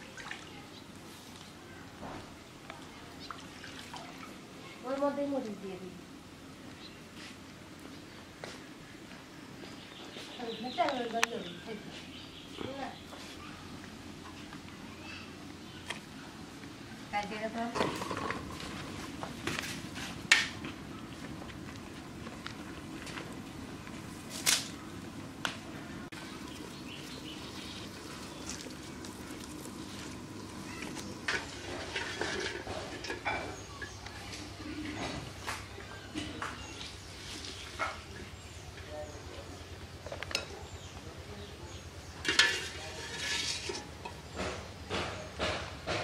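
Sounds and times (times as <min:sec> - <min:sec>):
wood fire burning: 0:00.0 - 0:03.3, 0:12.1 - 0:46.0
wire skimmer scraping metal pot: 0:17.7 - 0:20.6, 0:26.4 - 0:34.0, 0:42.1 - 0:44.6
fire crackling pops: 0:17.8 - 0:35.7.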